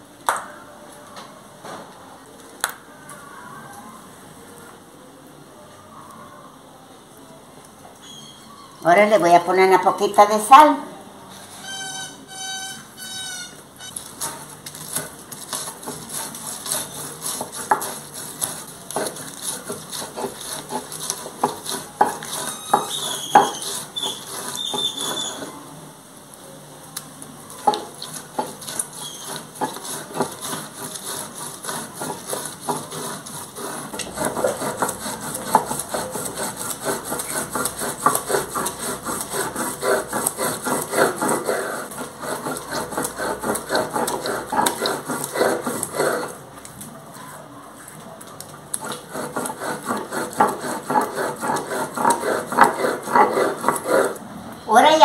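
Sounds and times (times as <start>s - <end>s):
stone scraping over stone: 13.8s - 25.6s, 27.6s - 46.4s, 48.7s - 54.2s.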